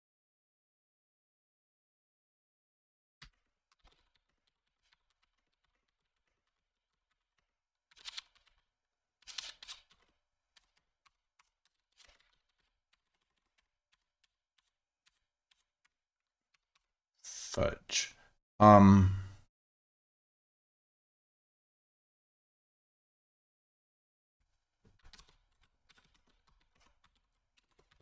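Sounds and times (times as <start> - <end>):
computer keyboard typing: 3.2 - 16.9, 25.0 - 28.0.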